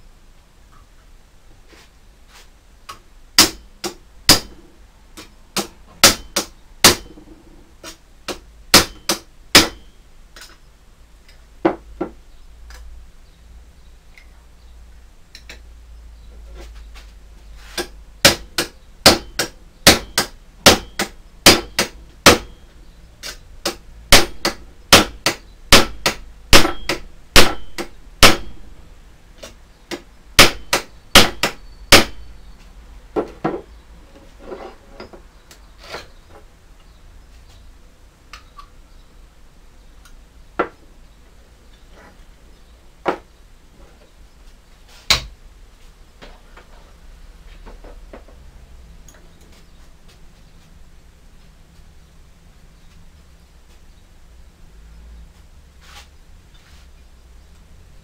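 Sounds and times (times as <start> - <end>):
hammer striking steel: 5.6 - 7.3, 8.8 - 9.9, 18.2 - 22.6, 23.7 - 28.6.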